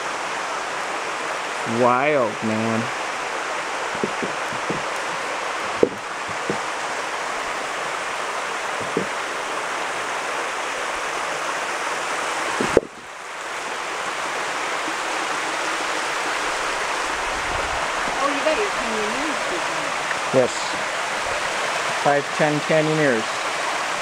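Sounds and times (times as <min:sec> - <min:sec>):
waterfall rushing: 0:00.0 - 0:24.0
short knocks: 0:03.9 - 0:06.7, 0:08.8 - 0:09.2, 0:12.6 - 0:13.0.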